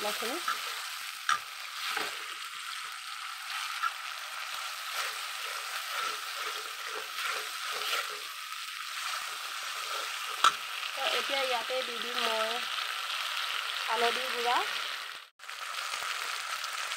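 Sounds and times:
metal spoon scraping pan: 0:00.0 - 0:11.2
onions sizzling in oil: 0:00.0 - 0:16.9.

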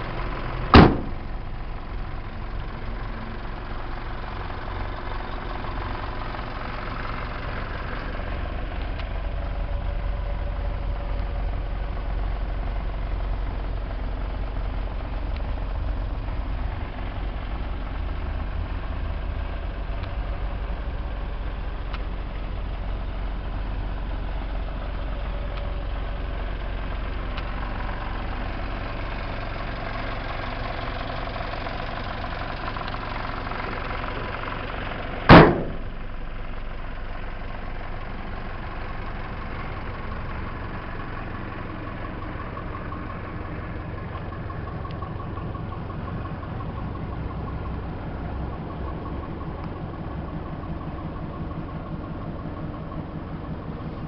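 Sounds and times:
fire truck engine idling: 0:00.0 - 0:54.0
cab door slamming: 0:00.7 - 0:01.2, 0:35.3 - 0:35.9.

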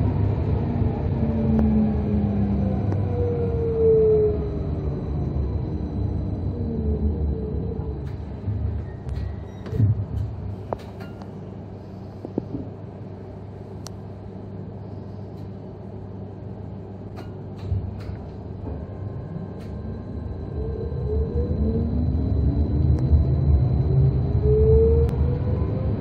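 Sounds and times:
traction drive whine: 0:00.0 - 0:26.0
tram hum and rumble: 0:00.0 - 0:26.0.

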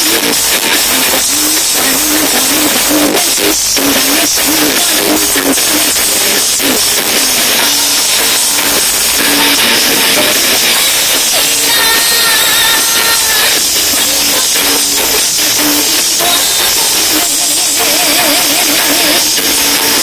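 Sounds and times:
strong hiss: 0:00.0 - 0:20.0
woman singing with live band: 0:11.0 - 0:13.7.

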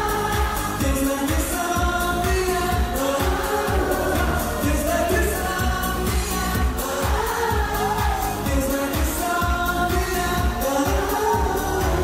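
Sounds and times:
bass drum beat: 0:00.0 - 0:12.0
person singing slow melody: 0:00.0 - 0:12.0
amplified accompaniment: 0:02.8 - 0:07.7.

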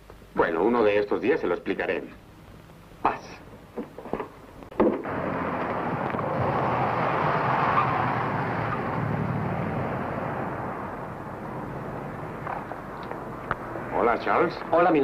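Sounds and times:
car driving past: 0:05.0 - 0:14.4.

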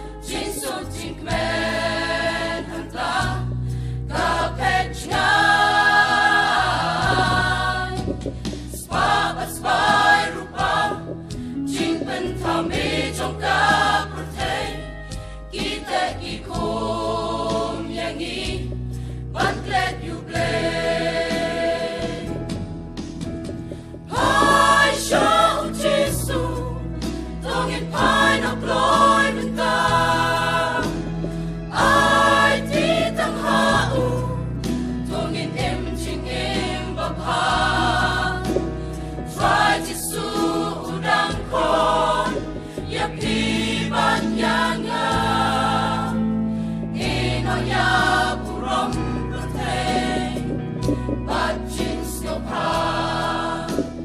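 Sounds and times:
choir singing a hymn: 0:00.0 - 0:54.0
low accompaniment: 0:06.2 - 0:13.0, 0:21.4 - 0:26.7.

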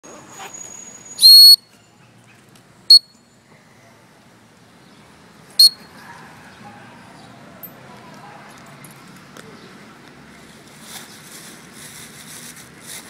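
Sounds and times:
whistle blasts: 0:00.6 - 0:01.7, 0:02.9 - 0:03.2, 0:05.6 - 0:05.9.

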